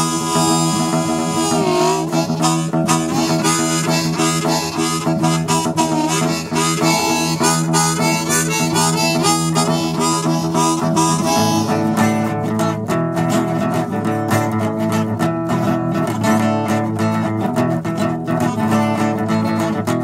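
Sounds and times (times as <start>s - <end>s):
blues harmonica solo: 0.0s - 20.0s
strummed acoustic guitar: 0.0s - 20.0s.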